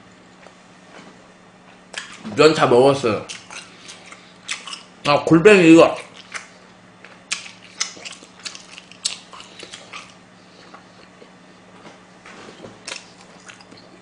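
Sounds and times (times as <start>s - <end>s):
crunchy chewing clicks: 1.6s - 2.3s, 3.2s - 5.1s, 5.8s - 11.4s, 12.7s - 14.0s
wet chewing mouth smacks: 1.7s - 2.3s, 3.3s - 4.9s, 5.9s - 11.4s, 12.8s - 14.0s.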